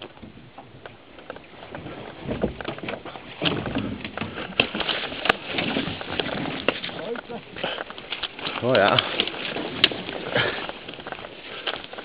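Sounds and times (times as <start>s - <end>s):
twigs crackling: 0.8s - 12.0s
footsteps through brush: 4.7s - 12.0s.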